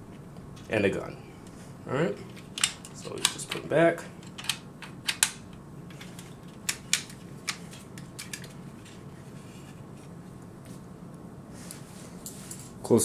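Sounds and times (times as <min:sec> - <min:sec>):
plastic parts clicking: 0:04.2 - 0:09.0.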